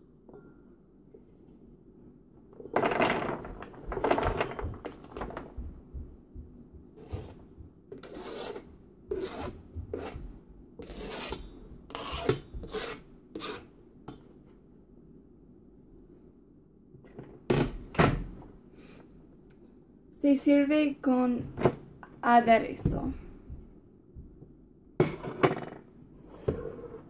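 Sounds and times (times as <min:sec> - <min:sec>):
spatula scraping cutting board: 0:07.0 - 0:13.8.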